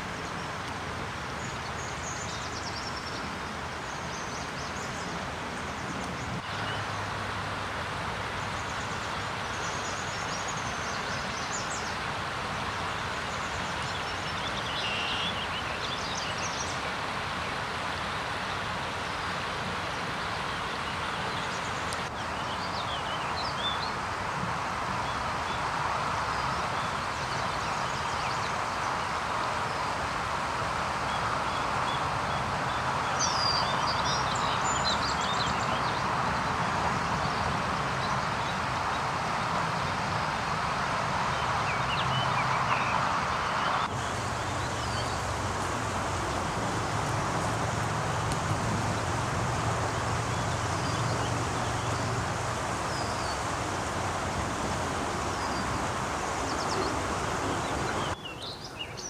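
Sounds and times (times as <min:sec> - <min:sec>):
steady rushing noise: 0:15.6 - 0:58.2.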